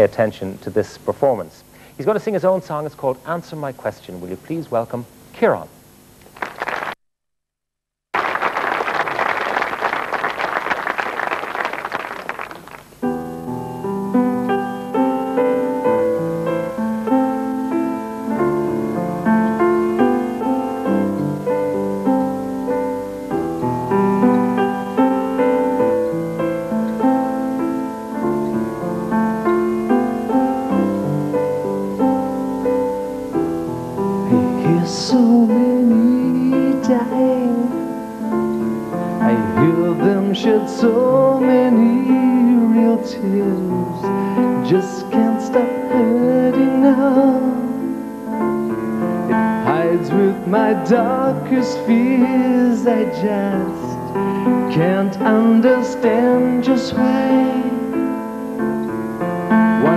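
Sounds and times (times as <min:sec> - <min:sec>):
audience applause: 0:06.2 - 0:07.0, 0:08.2 - 0:13.0
solo piano: 0:12.4 - 0:59.9
man singing: 0:34.2 - 0:37.9, 0:39.2 - 0:48.0, 0:49.3 - 0:54.0, 0:54.7 - 0:58.1.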